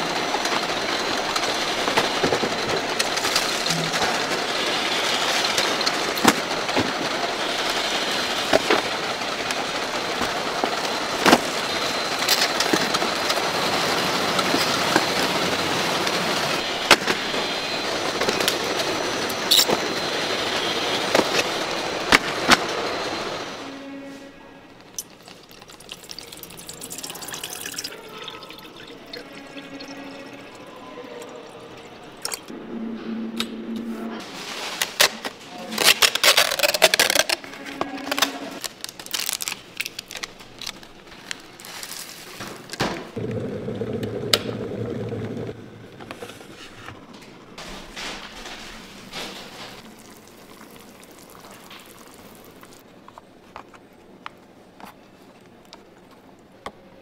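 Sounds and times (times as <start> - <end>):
water pouring into kettle: 24.9 - 32.5, 49.8 - 52.8
foil crinkling and rustling: 34.2 - 42.9.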